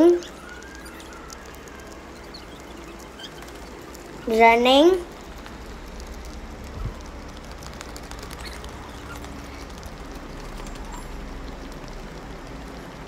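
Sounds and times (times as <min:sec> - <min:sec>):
wind rumble on microphone: 0:05.1 - 0:13.0.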